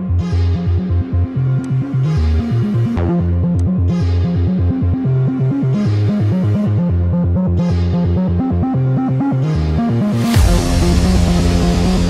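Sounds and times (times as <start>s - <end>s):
electronic music with synth melody: 0.0s - 12.0s
swoosh: 10.1s - 12.0s
heavy bass hit: 10.2s - 12.0s.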